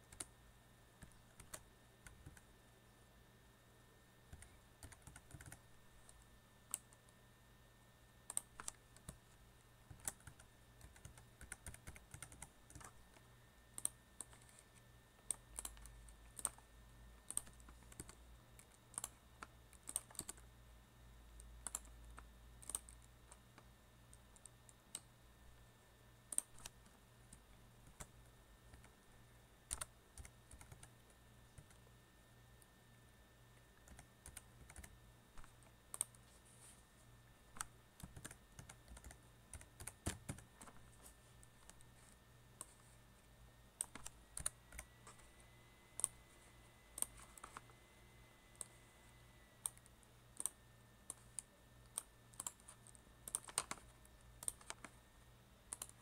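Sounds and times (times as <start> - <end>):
typing on a keyboard: 1.0 - 2.5, 4.3 - 7.0, 8.3 - 9.2, 9.9 - 13.0, 15.2 - 16.6, 17.2 - 20.4, 21.6 - 22.0, 22.6 - 23.4, 26.3 - 28.1, 29.7 - 30.9, 33.8 - 36.2, 37.6 - 40.8, 43.8 - 44.9, 49.7 - 55.0.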